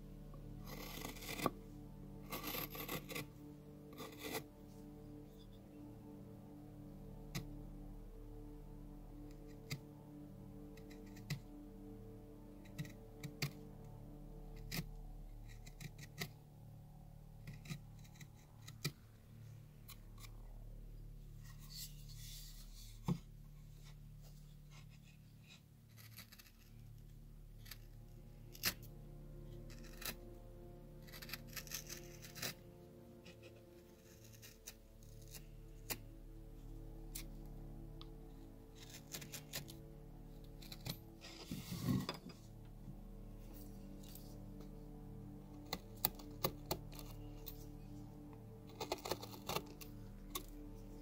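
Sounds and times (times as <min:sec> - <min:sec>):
quiet background music: 0:00.0 - 0:51.0
carving gouge cutting bark: 0:00.4 - 0:05.5, 0:09.2 - 0:10.0, 0:10.6 - 0:13.9, 0:14.5 - 0:16.4, 0:17.4 - 0:19.0, 0:24.7 - 0:42.4, 0:45.5 - 0:50.9.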